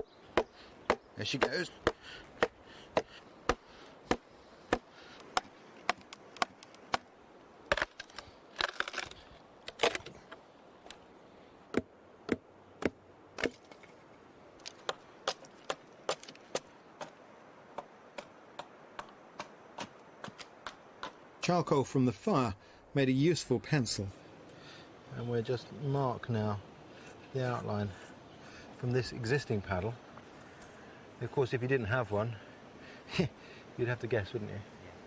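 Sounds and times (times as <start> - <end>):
wooden club knocking wedges: 0.0 - 7.0.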